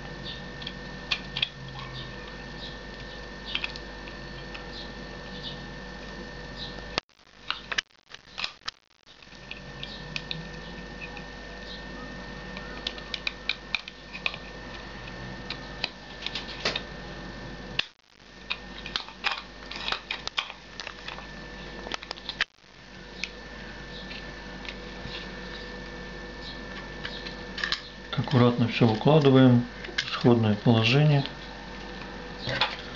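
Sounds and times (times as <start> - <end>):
faint steady hum: 0.0 - 32.9.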